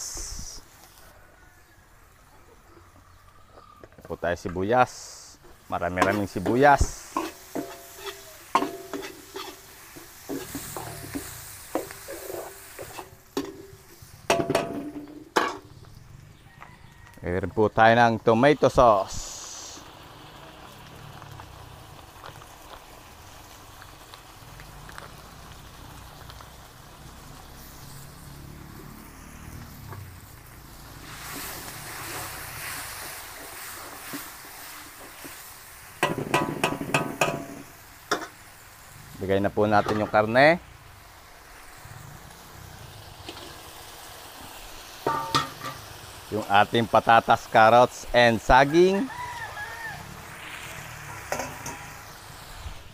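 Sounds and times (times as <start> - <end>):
faint sizzle: 0.0 - 52.9
ladle scraping wok: 5.4 - 15.7, 31.0 - 38.4, 43.0 - 46.0, 50.3 - 52.2.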